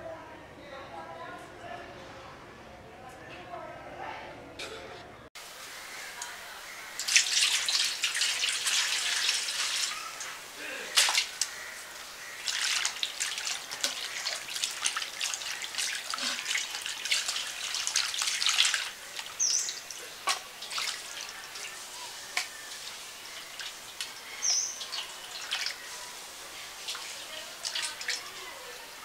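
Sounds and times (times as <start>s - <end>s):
water splashing and dripping: 5.5s - 29.0s
bird chirping: 19.3s - 20.2s, 21.3s - 26.1s.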